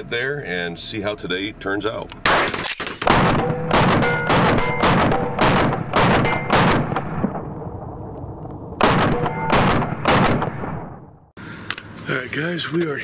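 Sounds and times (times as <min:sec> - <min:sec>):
rifle shots echoing: 0:02.2 - 0:11.2.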